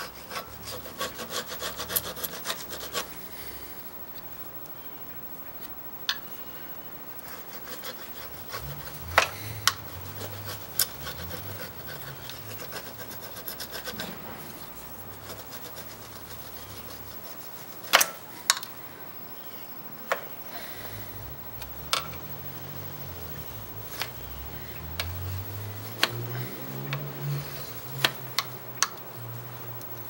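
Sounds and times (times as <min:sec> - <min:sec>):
metal rubbing on metal: 0:07.2 - 0:18.0.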